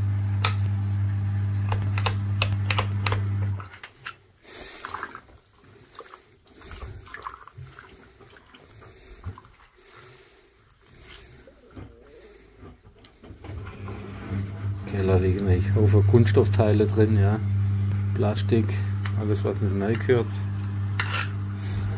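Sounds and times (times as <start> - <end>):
machine hum: 0.0 - 3.7, 11.8 - 21.9
water splashing and sloshing: 3.6 - 14.6.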